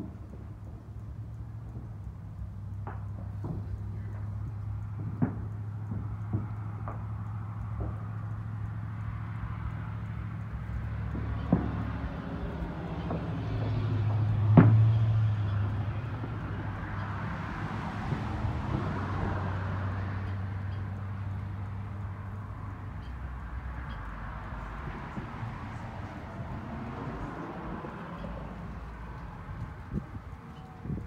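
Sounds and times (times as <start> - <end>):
vehicle passing by: 3.1 - 31.0
sharp pop: 14.5 - 15.0.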